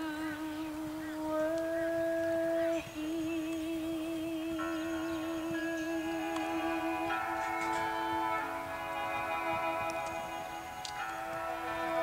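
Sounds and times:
sustained high chord: 4.3 - 12.0.

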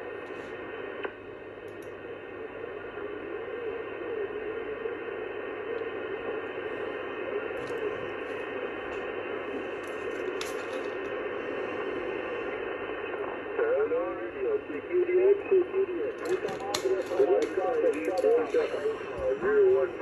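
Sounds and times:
faint wavering radio tones: 0.0 - 20.0
radio receiver hiss and static: 0.0 - 20.0.

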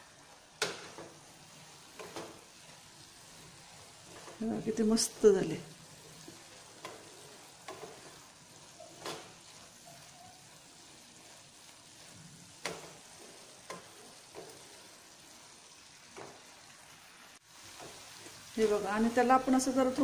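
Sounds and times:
food sizzling in a pan: 0.0 - 20.0
spatula scraping a pan: 0.6 - 5.2, 5.8 - 16.5.

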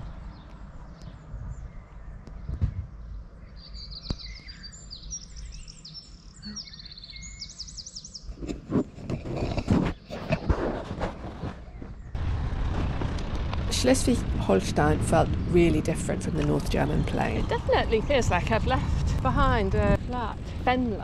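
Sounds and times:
wind noise: 0.0 - 3.3, 8.3 - 21.0
songbird singing trilled phrases: 0.0 - 8.3
bicycle rumble: 8.6 - 21.0.

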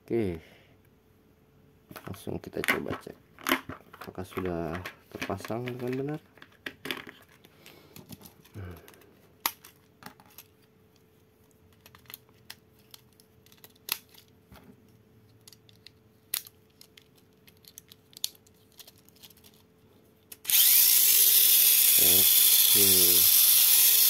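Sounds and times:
small electric motor running: 20.4 - 24.0.

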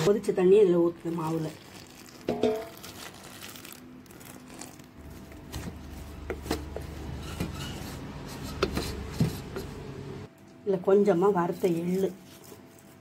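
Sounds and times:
spatula stirring dough in metal bowl: 0.0 - 2.7, 5.1 - 9.8.

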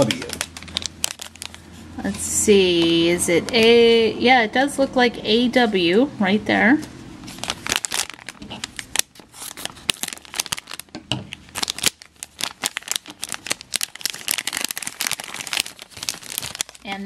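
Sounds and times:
foil bag crinkling: 0.0 - 1.9, 7.2 - 17.0.

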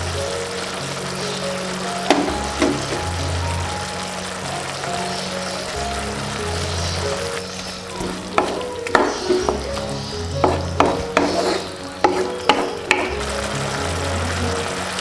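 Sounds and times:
food sizzling: 0.0 - 15.0
spatula knocking on pan: 2.1 - 3.2, 8.0 - 9.8, 10.4 - 13.2.

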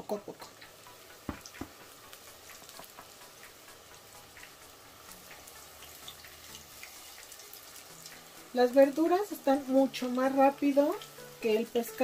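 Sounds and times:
oil sizzling and crackling: 0.0 - 12.0.

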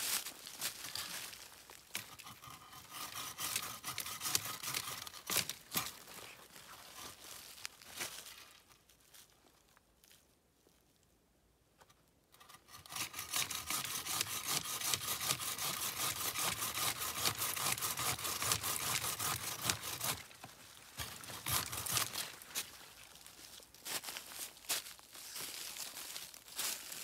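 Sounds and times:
hand saw cutting wood: 2.0 - 6.2, 12.4 - 22.7.

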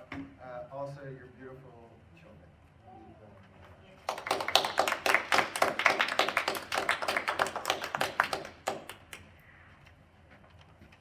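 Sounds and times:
small audience applause: 4.0 - 9.4.

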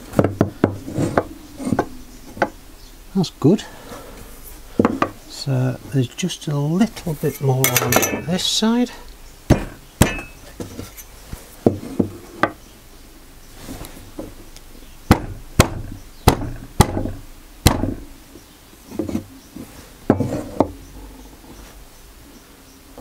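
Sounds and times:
wood scraping and shifting: 0.0 - 2.6, 3.6 - 9.0, 10.1 - 12.6, 18.9 - 21.8
sharp wood knocks: 0.1 - 2.6, 9.5 - 10.8, 15.1 - 18.1.

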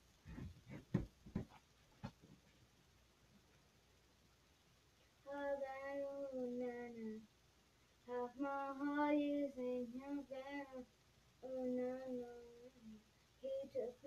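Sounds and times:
girl singing: 5.2 - 7.3, 8.0 - 14.0.

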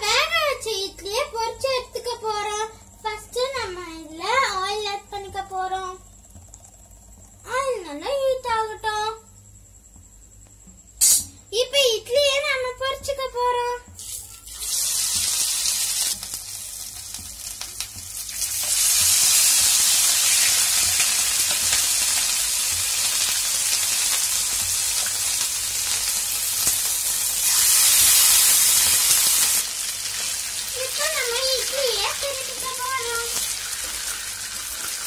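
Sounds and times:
food deep-frying in hot oil: 13.9 - 35.0.

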